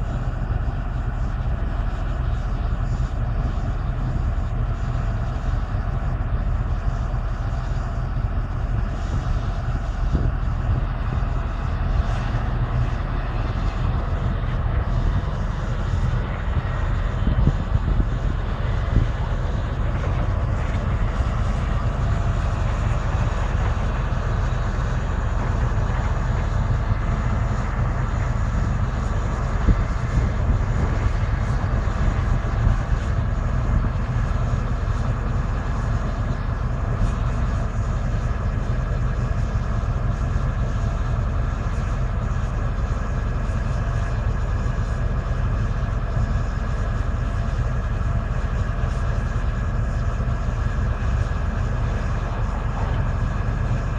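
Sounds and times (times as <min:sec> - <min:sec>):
excavator diesel engine droning: 0:00.0 - 0:53.9.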